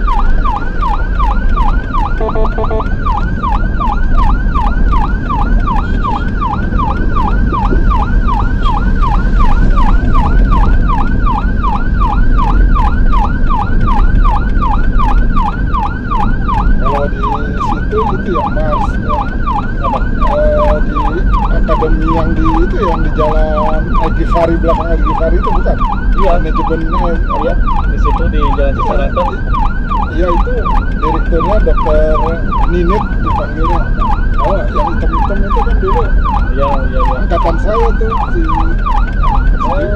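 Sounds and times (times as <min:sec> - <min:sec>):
ambulance siren yelp: 0:00.0 - 0:39.9
engine and tyres rumble: 0:00.0 - 0:39.9.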